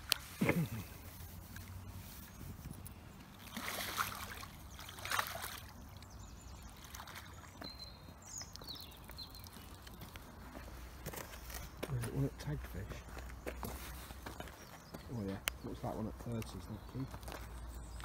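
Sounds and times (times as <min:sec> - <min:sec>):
water splashing and sloshing: 0:00.0 - 0:11.6.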